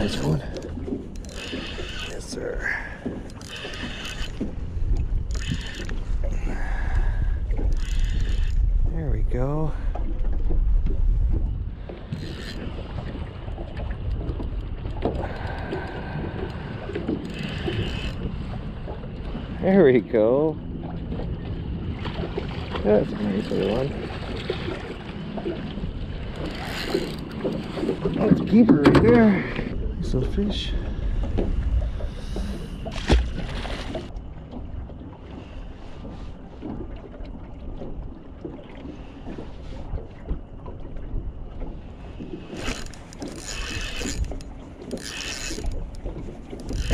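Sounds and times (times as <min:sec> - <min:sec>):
fishing reel clicking and whirring: 0:00.0 - 0:06.1, 0:06.9 - 0:08.6, 0:12.1 - 0:12.9, 0:15.2 - 0:18.3, 0:26.3 - 0:27.6, 0:42.5 - 0:46.9
wind buffeting microphone: 0:00.0 - 0:35.1
small waves lapping: 0:00.0 - 0:46.9.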